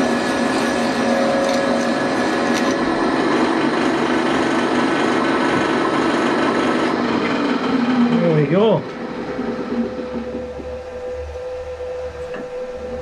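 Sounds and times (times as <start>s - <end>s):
drill cutting into steel: 0.0s - 11.3s
milling machine spindle running: 0.0s - 13.0s.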